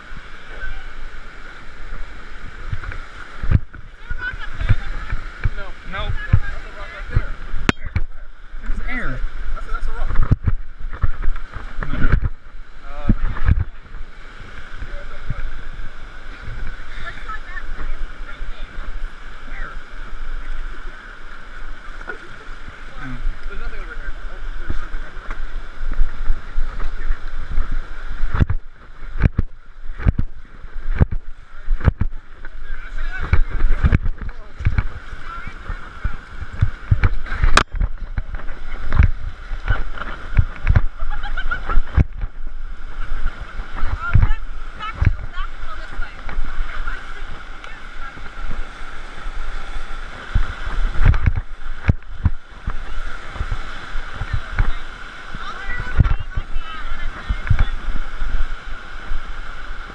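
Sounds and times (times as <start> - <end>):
wind buffeting microphone: 0.0 - 21.9, 22.7 - 59.9
river water rushing and splashing: 0.0 - 59.9
low thumps: 2.6 - 8.8, 10.0 - 16.8, 24.7 - 59.3.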